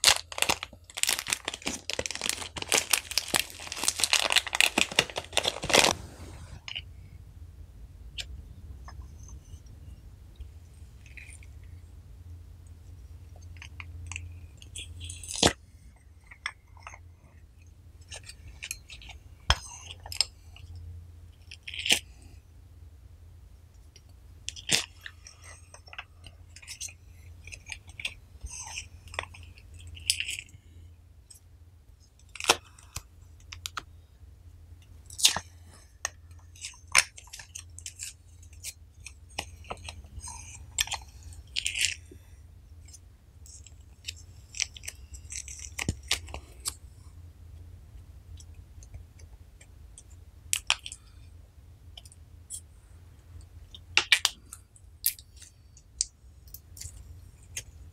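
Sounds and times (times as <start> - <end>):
slime squishing in garlic press: 0.0 - 6.9, 34.9 - 46.8.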